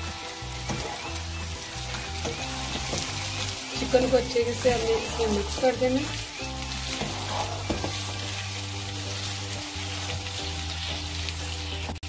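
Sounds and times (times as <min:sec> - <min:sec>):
chicken and onions sizzling in oil: 0:00.0 - 0:12.0
spatula stirring in a pan: 0:00.0 - 0:12.0.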